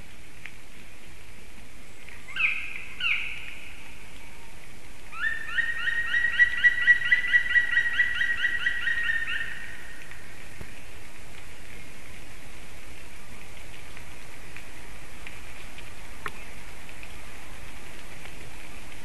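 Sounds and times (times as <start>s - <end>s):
woodpecker calling: 2.3s - 3.8s, 5.1s - 10.0s.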